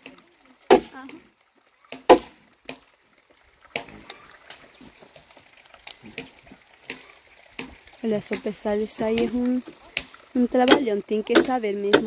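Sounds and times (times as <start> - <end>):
sharp wooden knocks: 0.7 - 1.0, 2.1 - 2.3, 10.7 - 12.0.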